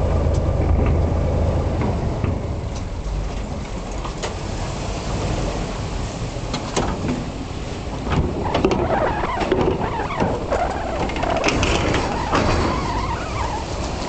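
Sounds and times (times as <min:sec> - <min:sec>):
car engine rumble: 0:00.0 - 0:14.0
tyres clanking on steel ramp: 0:08.0 - 0:14.0.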